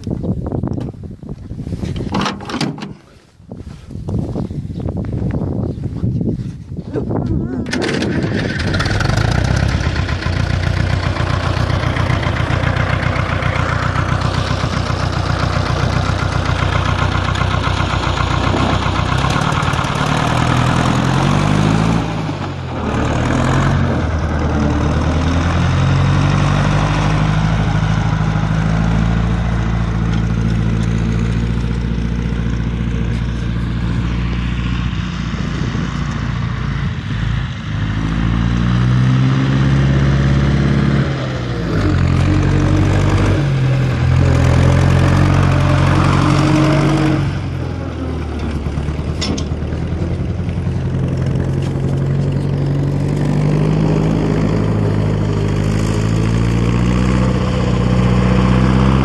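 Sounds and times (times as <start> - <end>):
tractor diesel engine running: 7.0 - 59.0.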